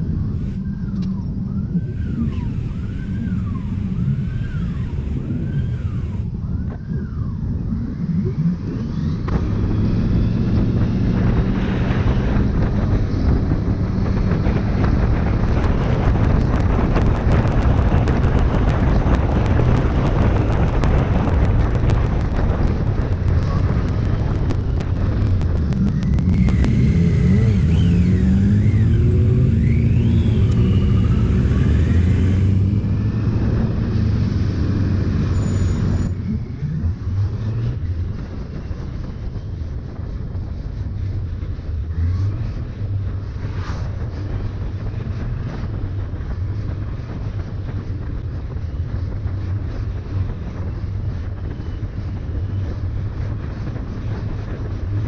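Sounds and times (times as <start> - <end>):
motorcycle engine running: 0.0 - 55.0
sharp clicks: 20.7 - 27.9.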